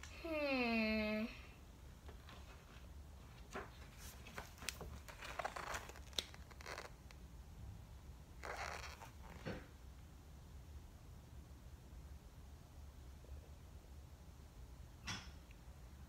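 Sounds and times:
book pages rustling: 2.0 - 7.2, 8.4 - 9.5.

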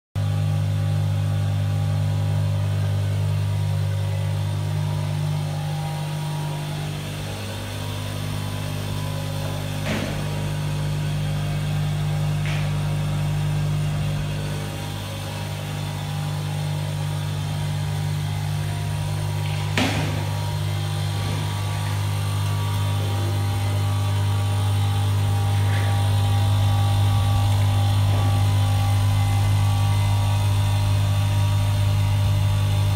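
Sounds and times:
bowl feeder humming: 0.2 - 32.9.

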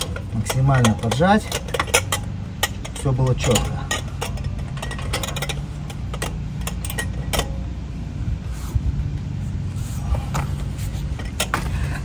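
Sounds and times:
wrench clicking and clinking: 0.0 - 7.7
steady low hum: 0.0 - 12.0.

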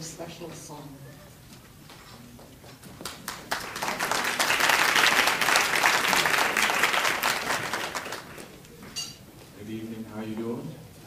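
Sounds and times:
audience applauding: 2.9 - 8.8.

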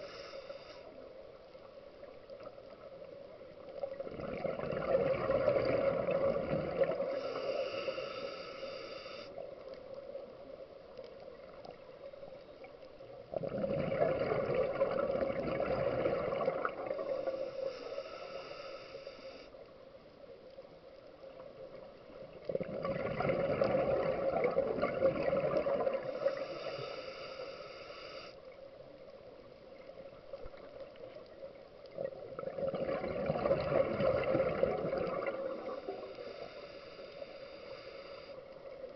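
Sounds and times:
regulator hissing inhalation: 0.0 - 0.9, 7.0 - 9.4, 17.0 - 19.5, 26.0 - 28.4, 35.6 - 38.4
bubbling exhaled air underwater: 3.8 - 8.3, 13.2 - 17.4, 22.3 - 26.8, 31.9 - 36.5.

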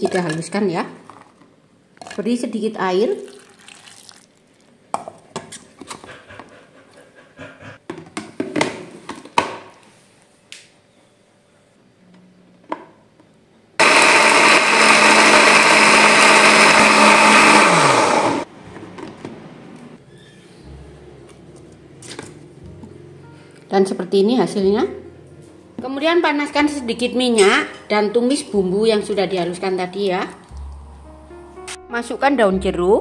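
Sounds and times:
electric blender grinding: 13.8 - 18.5.

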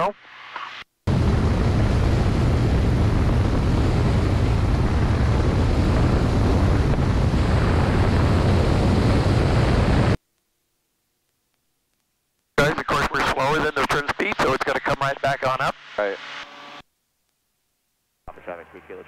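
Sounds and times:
wind rushing: 1.1 - 10.2.

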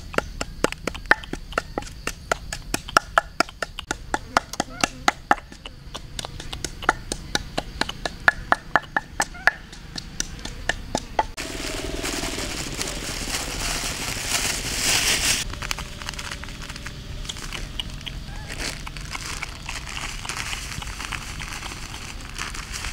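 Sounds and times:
loud hissing rustle: 11.2 - 22.9.

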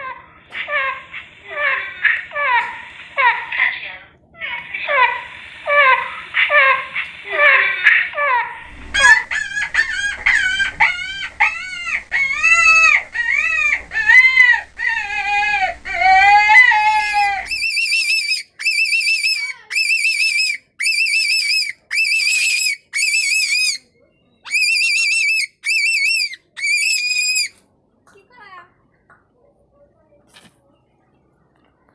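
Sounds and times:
rabbit screaming: 4.4 - 27.6.

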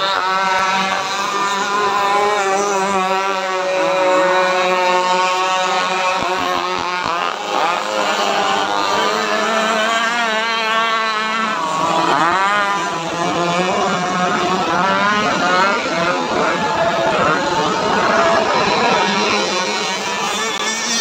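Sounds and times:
boat passing close: 0.0 - 21.0
rc boat engines racing: 0.0 - 21.0.

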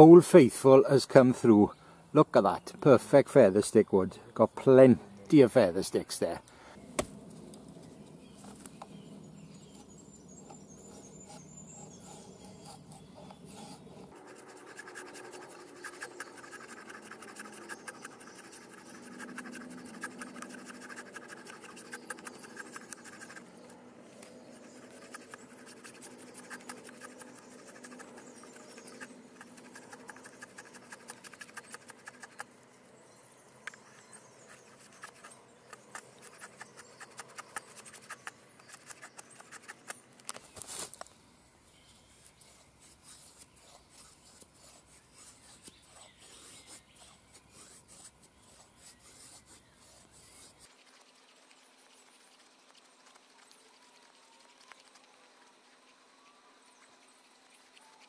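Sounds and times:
wooden sticks scraping on knife edge: 9.6 - 32.5, 33.7 - 41.1.

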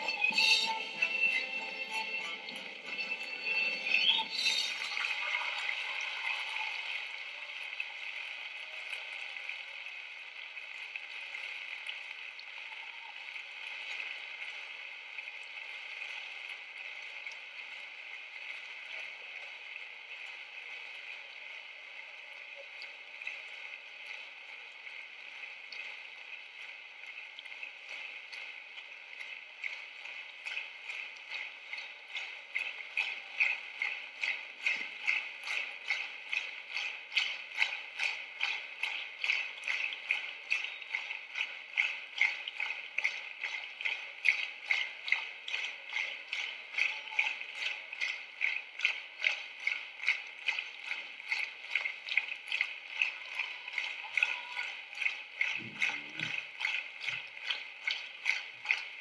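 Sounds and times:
rhythmic clapping in unison: 0.0 - 7.2, 29.2 - 59.0
audience applauding: 0.0 - 9.2.

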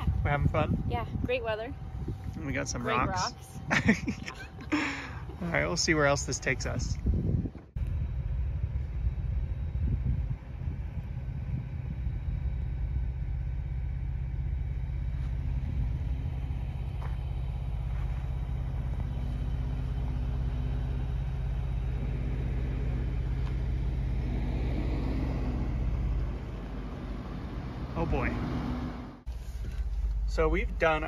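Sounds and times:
truck approaching: 0.0 - 31.0
vehicle engine idling: 0.0 - 31.0
tyres on gravel: 14.6 - 28.5.

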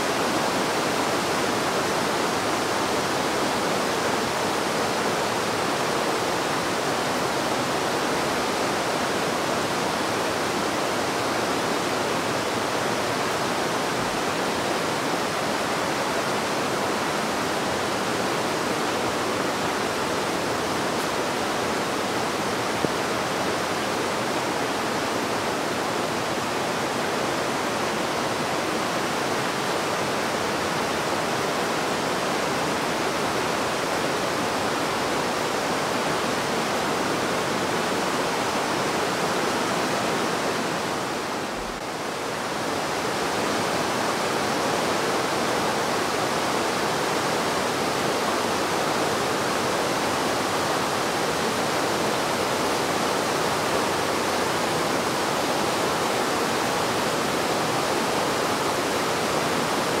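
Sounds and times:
river rushing over boulders: 0.0 - 60.0.

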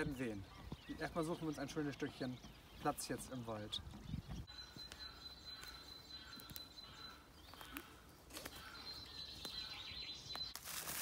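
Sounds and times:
faint bird calls: 0.0 - 10.6
footsteps on forest floor: 4.4 - 11.0.

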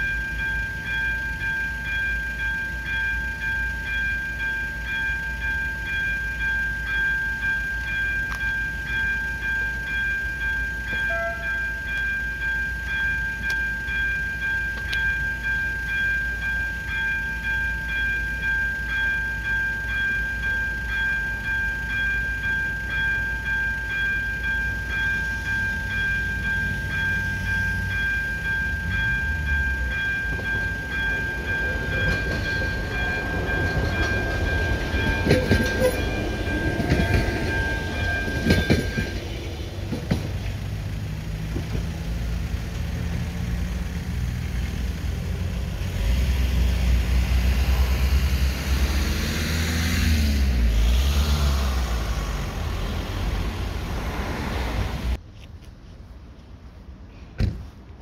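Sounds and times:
level crossing electronic ringing: 0.0 - 39.4
train rumble and wheel clicks: 0.0 - 58.0.

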